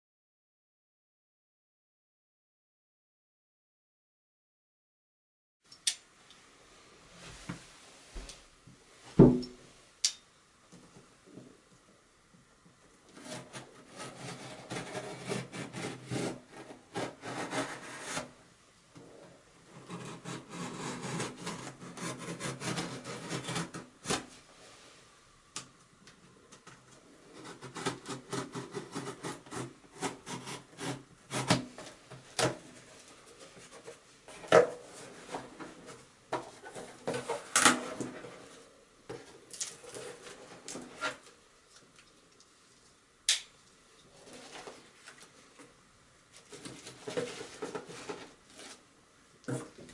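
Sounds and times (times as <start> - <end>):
heavy thump: 9.2 - 9.5
utility knife cutting cardboard: 13.2 - 18.3, 19.8 - 24.2, 27.4 - 31.7.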